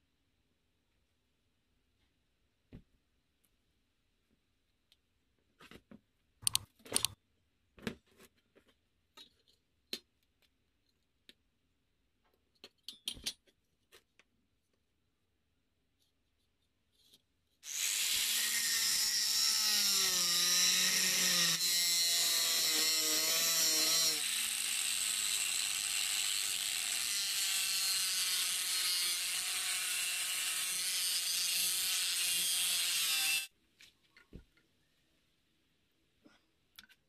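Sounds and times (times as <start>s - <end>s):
angle grinder cutting metal: 17.6s - 33.5s.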